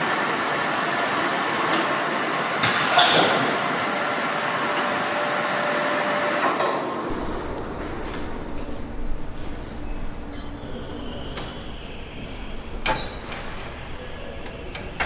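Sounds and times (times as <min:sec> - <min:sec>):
steady machinery noise: 0:07.0 - 0:15.0
faint steady whine: 0:07.1 - 0:15.0.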